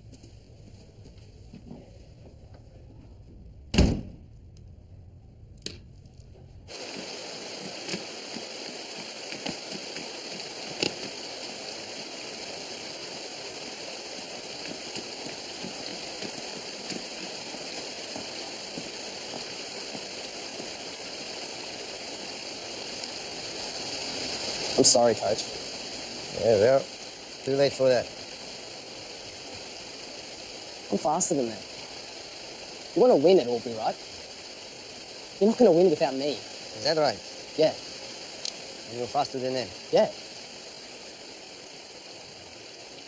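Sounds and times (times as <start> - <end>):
door banging: 3.6 - 4.3
swimming pool water wash: 6.7 - 43.0.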